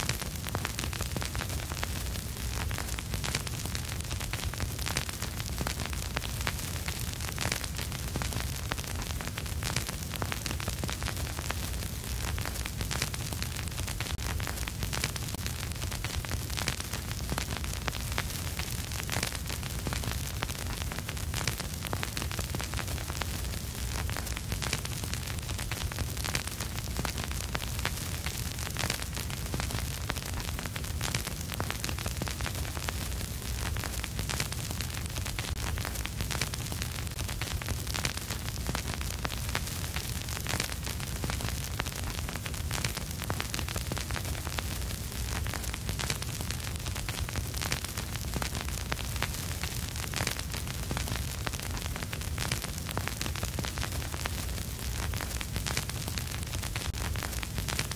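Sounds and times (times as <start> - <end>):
vinyl record crackle and pops: 0.0 - 57.9.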